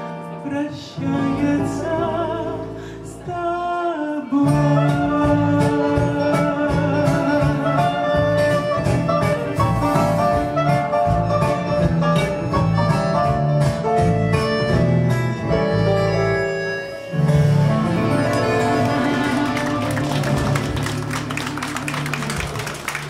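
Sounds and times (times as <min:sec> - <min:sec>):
live band playing: 0:00.0 - 0:23.0
drums keeping a beat: 0:04.9 - 0:15.7
clarinet: 0:06.9 - 0:11.8, 0:14.0 - 0:20.6.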